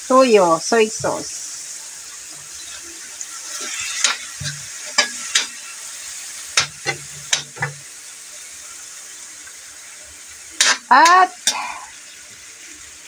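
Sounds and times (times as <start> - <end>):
food sizzling in a wok: 0.0 - 13.0
metal spatula scraping pan: 2.3 - 5.8, 6.5 - 7.9, 10.6 - 11.7.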